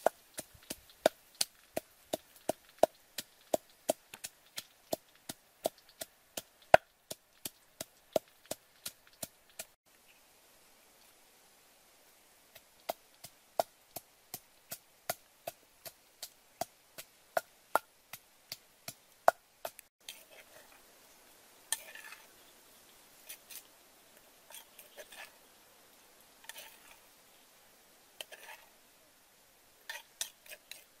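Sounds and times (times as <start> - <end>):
pestle pounding in wooden mortar: 0.0 - 9.8
light clatters and scrapes: 20.0 - 20.8, 21.7 - 22.5, 24.4 - 25.4, 26.4 - 27.0, 28.2 - 28.8, 29.9 - 31.0.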